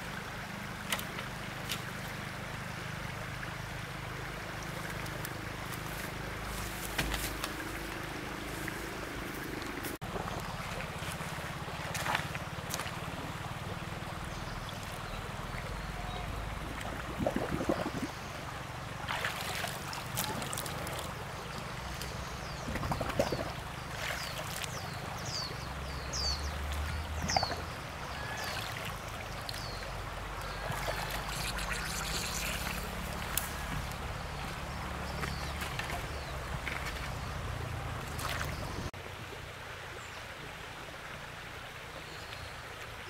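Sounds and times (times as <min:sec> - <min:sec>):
water running and splashing: 0:02.8 - 0:38.9
small bird chirping: 0:31.2 - 0:33.0.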